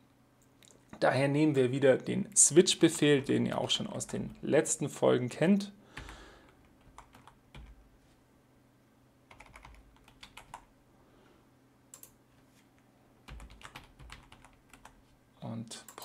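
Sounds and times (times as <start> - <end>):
faint low hum: 0.0 - 16.0
keyboard typing: 6.0 - 7.8, 9.3 - 10.7, 11.9 - 12.2, 13.2 - 15.0.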